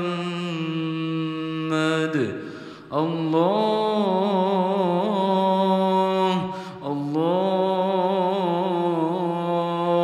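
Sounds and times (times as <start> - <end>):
person chanting: 0.0 - 10.0
short breath: 2.4 - 2.9, 6.5 - 6.8.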